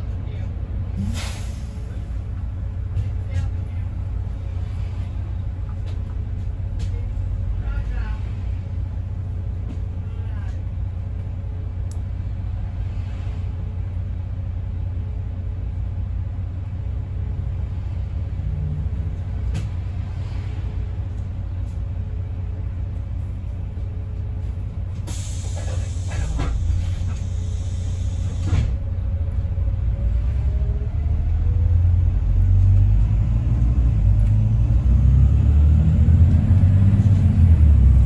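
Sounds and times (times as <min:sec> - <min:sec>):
bus diesel engine idling: 0:00.0 - 0:33.1
compressed air hissing: 0:25.1 - 0:28.5.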